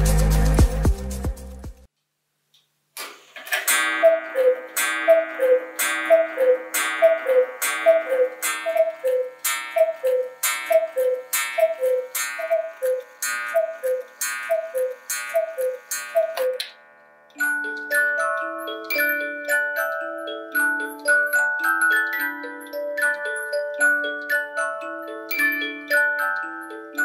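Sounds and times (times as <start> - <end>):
two-note cuckoo call: 3.7 - 16.7.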